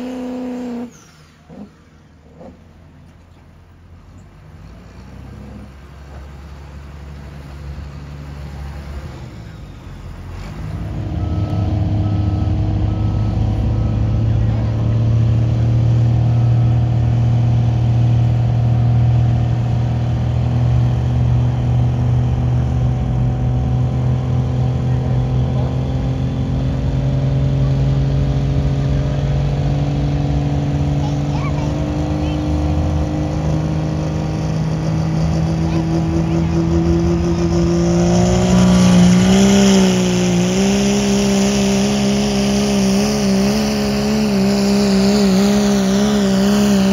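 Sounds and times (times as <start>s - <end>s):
diesel engine revving steadily: 0.0s - 46.9s.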